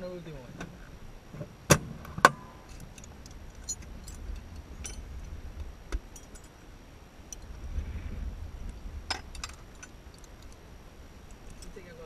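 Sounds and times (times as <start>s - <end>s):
low steady rumble: 0.0s - 12.0s
light clicks and clinks of fittings: 6.0s - 6.6s, 8.7s - 10.6s, 11.2s - 11.9s.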